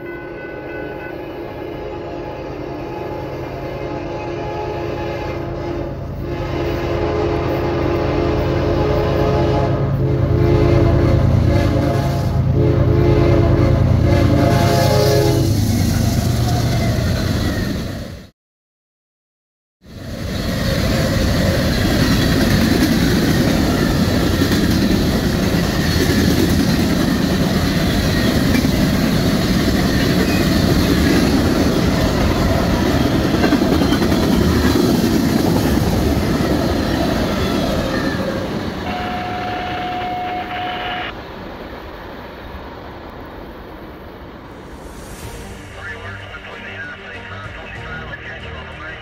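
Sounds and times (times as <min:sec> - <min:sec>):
freight train wheels rumbling: 0:19.9 - 0:49.0
steady tone: 0:44.0 - 0:47.9.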